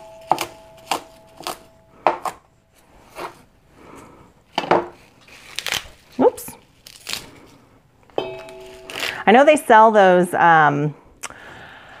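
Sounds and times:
knife chopping on cutting board: 0.0s - 2.4s
faint ringing tone: 8.2s - 9.2s.

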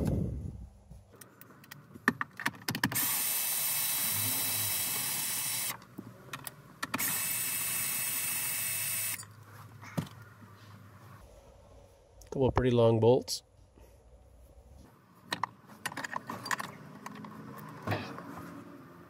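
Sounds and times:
drill motor running: 3.0s - 5.8s, 7.0s - 9.2s.

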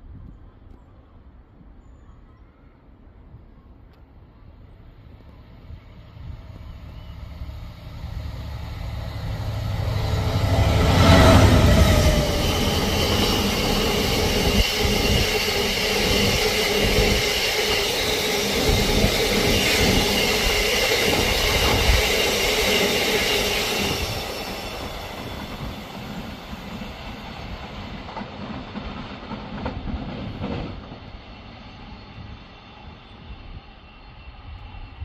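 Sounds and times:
high wheel squeal: 8.5s - 27.7s
train wheels clattering on rails: 9.0s - 31.4s.

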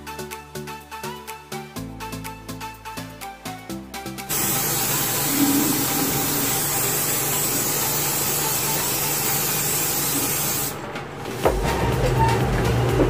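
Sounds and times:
music: 0.0s - 10.7s, 11.4s - 13.0s
spray paint can hissing: 4.3s - 11.5s.

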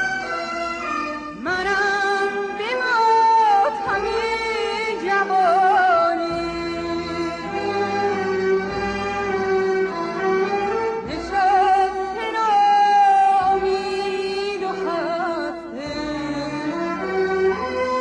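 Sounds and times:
woman singing with trills: 1.4s - 8.2s, 11.1s - 17.1s.

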